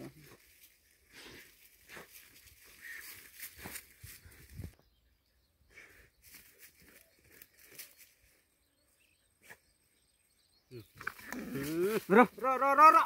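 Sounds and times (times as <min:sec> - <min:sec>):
rustling in dry leaves: 0:00.0 - 0:04.8.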